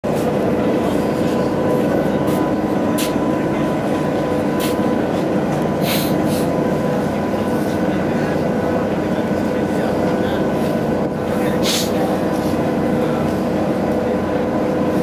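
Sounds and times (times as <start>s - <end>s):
ferry engine droning: 0.0s - 15.0s
short hisses: 5.8s - 6.5s.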